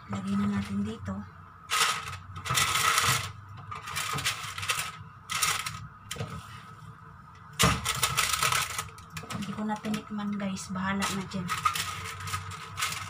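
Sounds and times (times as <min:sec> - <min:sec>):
baking paper crinkling: 0:01.7 - 0:06.3, 0:07.6 - 0:13.0.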